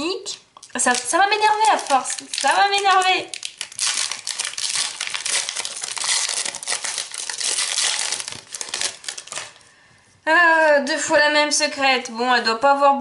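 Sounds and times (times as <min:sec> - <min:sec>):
foil wrapper tearing and crinkling: 0:00.6 - 0:09.7.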